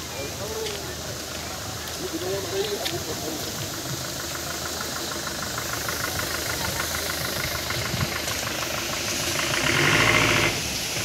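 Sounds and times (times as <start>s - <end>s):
engine idling: 0.0s - 11.0s
fast regular ticking: 2.6s - 11.0s.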